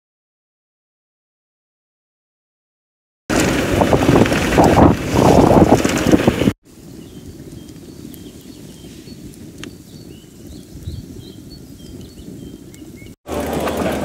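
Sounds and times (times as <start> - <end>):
gusting wind on microphone: 3.3 - 14.0
low wind rumble: 3.3 - 14.0.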